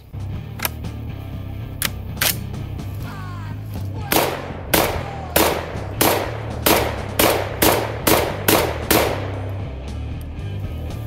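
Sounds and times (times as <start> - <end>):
shotgun shots: 4.0 - 9.8.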